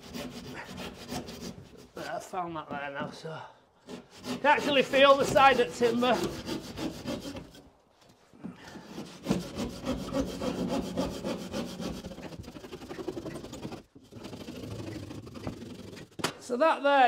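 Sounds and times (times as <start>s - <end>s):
handsaw cutting plasterboard: 0.0s - 2.1s, 3.8s - 7.7s, 8.7s - 16.2s.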